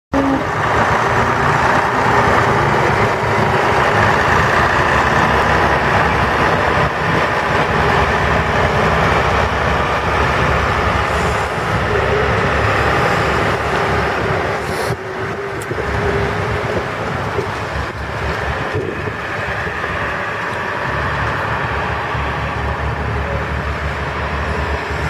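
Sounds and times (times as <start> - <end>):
heavy diesel engines running: 0.1 - 25.0
passing street traffic: 0.1 - 25.0.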